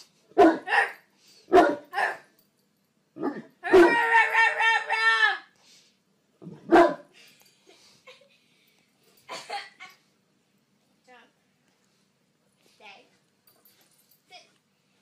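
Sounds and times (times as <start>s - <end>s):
large dog barking: 0.4s - 2.3s, 3.2s - 4.2s, 6.6s - 7.1s
high wavering dog cry: 3.2s - 5.5s.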